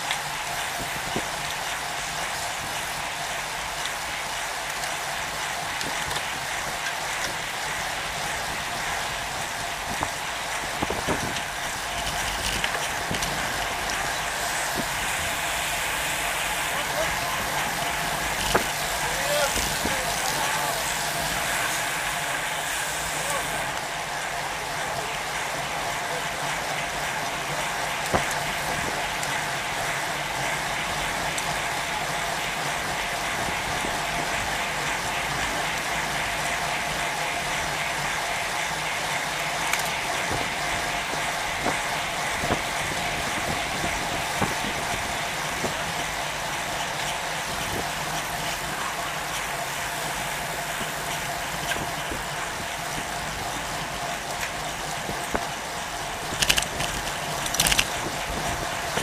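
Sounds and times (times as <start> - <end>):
wind and road noise: 0.0 - 23.6, 27.3 - 59.0
constant hum: 0.0 - 59.0
bike clicks: 10.8 - 14.5, 18.3 - 19.7, 56.2 - 59.0.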